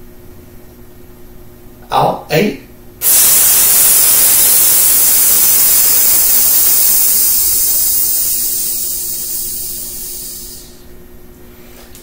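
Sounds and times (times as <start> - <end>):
man exhaling through teeth: 3.0 - 10.8.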